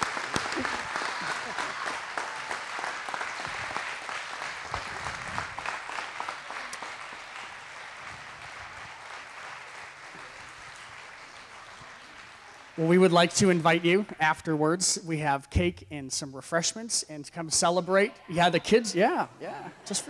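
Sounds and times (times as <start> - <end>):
congregation applauding: 0.0 - 14.2.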